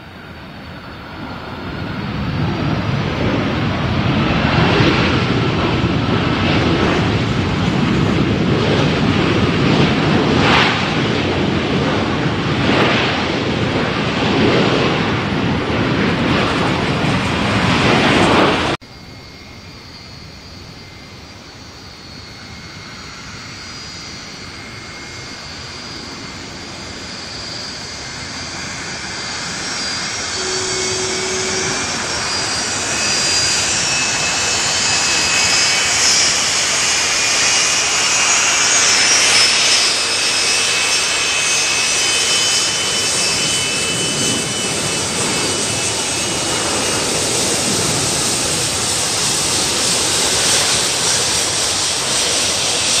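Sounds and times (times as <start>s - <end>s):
approaching jet engine whine: 0.0s - 53.0s
landing jet engines roaring: 0.0s - 53.0s.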